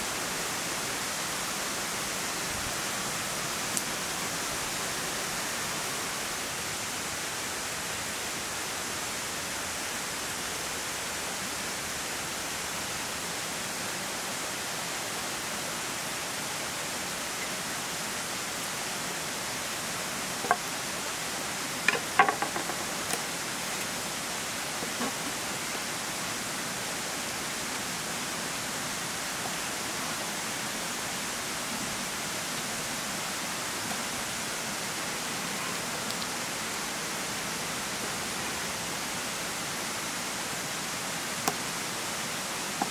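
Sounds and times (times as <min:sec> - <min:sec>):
steady rushing hiss: 0:00.0 - 0:42.9
cleaver knocking on cutting board: 0:21.9 - 0:22.8.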